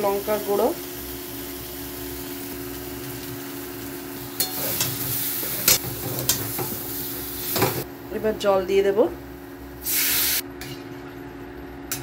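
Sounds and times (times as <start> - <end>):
potatoes sizzling in oil: 0.0 - 7.9.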